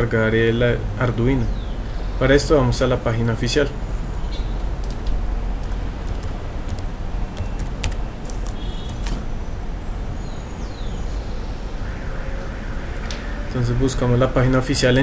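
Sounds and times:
steady hiss and hum: 0:00.0 - 0:15.0
keyboard keys tapping: 0:04.8 - 0:09.4.

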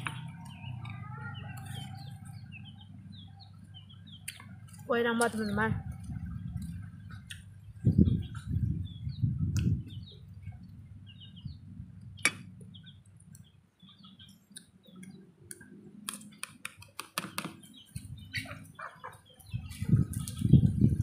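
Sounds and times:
wet chewing and lip-smacking: 0:04.2 - 0:04.9.

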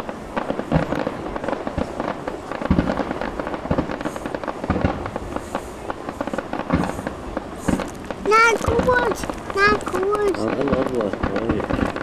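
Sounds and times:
deep firework bangs: 0:00.0 - 0:12.0
fireworks crackling and popping: 0:00.0 - 0:12.0.

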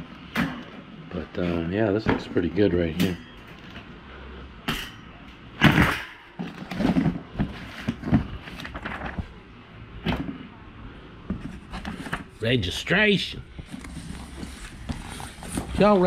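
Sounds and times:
cardboard and paper rustling: 0:06.4 - 0:09.4, 0:11.3 - 0:12.5, 0:13.5 - 0:16.0.

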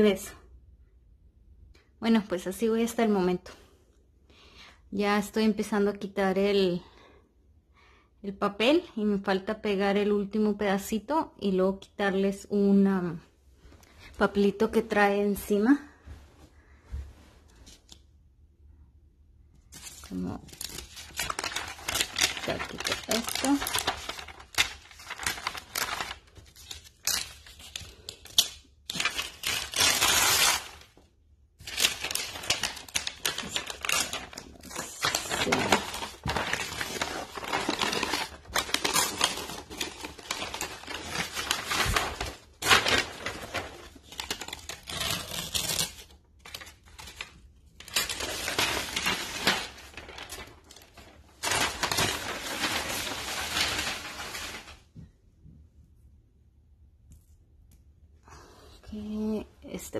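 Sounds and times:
paper backing peeled off crinkling: 0:19.7 - 0:31.0, 0:31.6 - 0:54.9.

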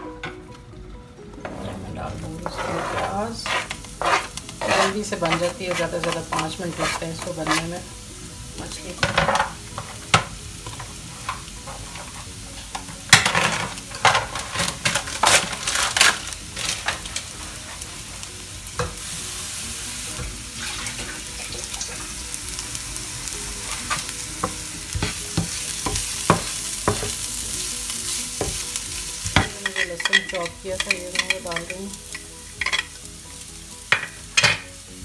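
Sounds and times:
leeks sizzling in a pan: 0:01.5 - 0:35.0
wooden spatula knocking on a pan: 0:29.2 - 0:30.2.

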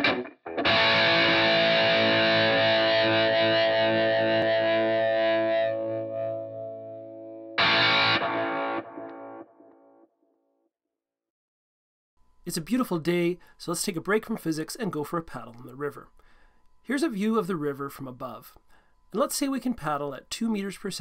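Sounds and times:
distorted electric guitar chords: 0:00.0 - 0:10.0.

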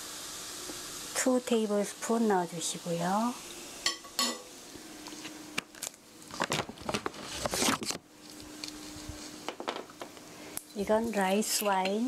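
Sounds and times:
rustling and scraping: 0:06.3 - 0:09.7.

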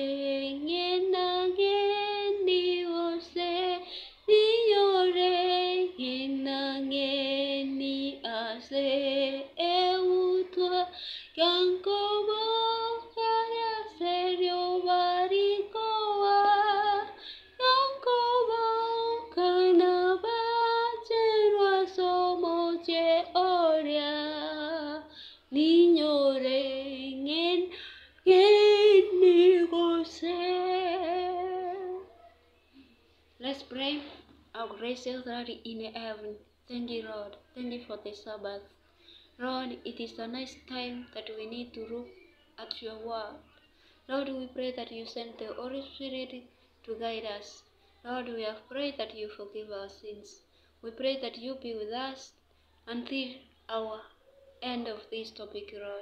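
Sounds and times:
woman singing a hymn: 0:00.0 - 0:32.1.

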